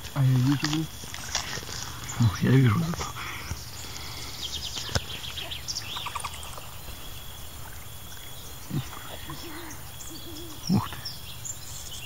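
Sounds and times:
fast high chirping trills: 3.6s - 12.0s
low wavering animal call: 5.2s - 11.2s.

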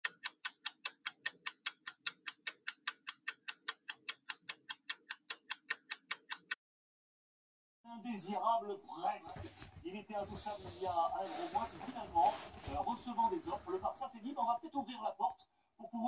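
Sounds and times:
rapid clock-like ticking: 0.0s - 6.6s.

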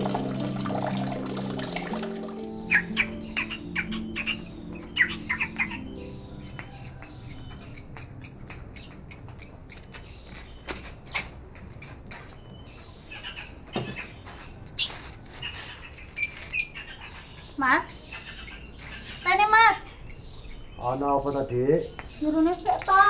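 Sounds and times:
soft background music: 0.0s - 10.6s
caged bird chirping: 1.2s - 23.0s.

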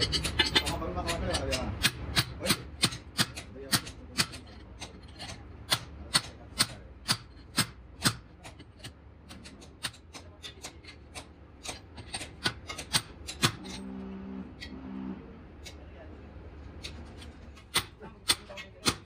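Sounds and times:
hammer striking metal studs: 0.0s - 5.0s, 5.7s - 13.8s, 16.8s - 19.0s.

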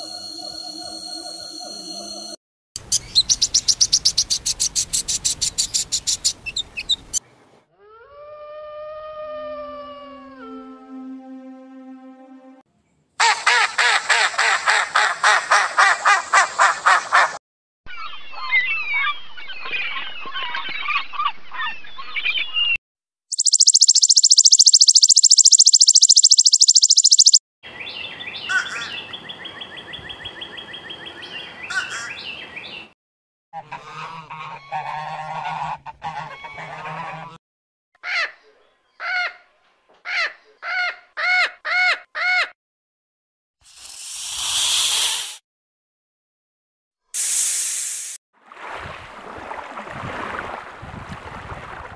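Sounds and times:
chirping: 2.8s - 7.2s, 23.3s - 27.4s
short repeated calls: 23.3s - 27.4s
pulsed animal calls: 23.4s - 27.4s.

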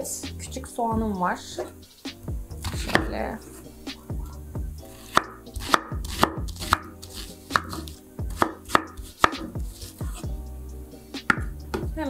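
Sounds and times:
knife chopping on wooden board: 2.6s - 3.2s, 5.0s - 10.3s, 11.2s - 12.0s.

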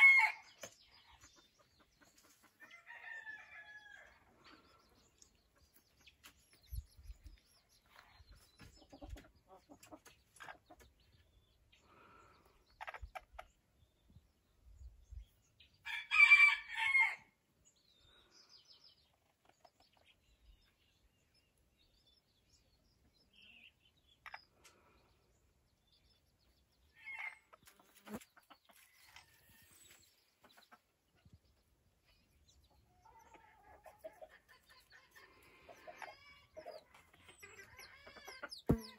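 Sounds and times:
chickens calling: 0.0s - 14.2s, 32.5s - 38.9s
hen clucking softly: 7.9s - 11.3s, 12.6s - 13.6s, 32.9s - 38.9s.

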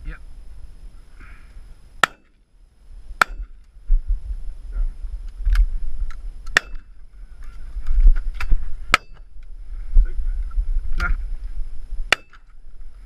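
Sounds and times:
wind rumbling on microphone: 2.7s - 13.0s.

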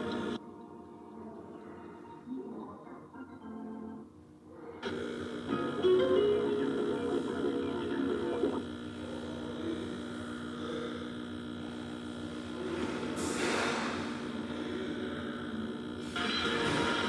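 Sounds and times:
steady humming tone: 0.0s - 17.0s
hiss-like noise: 4.8s - 17.0s.

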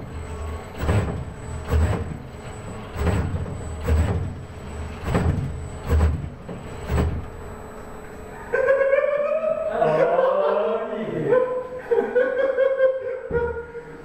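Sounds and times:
robot arm motors whirring: 0.0s - 8.4s.

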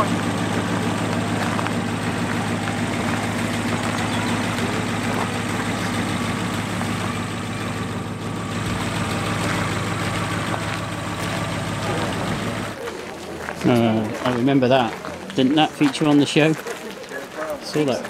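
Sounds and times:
car engine idling: 0.0s - 12.9s.

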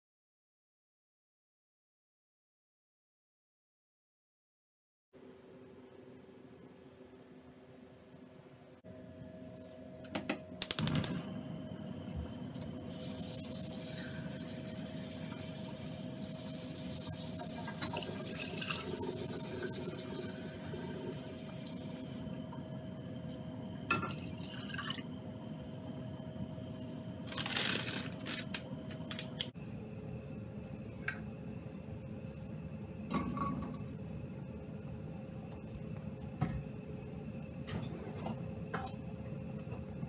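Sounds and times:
steady hum: 5.2s - 40.0s
gas flame catching with rush: 10.6s - 11.2s
gas igniter clicks: 10.6s - 11.2s.

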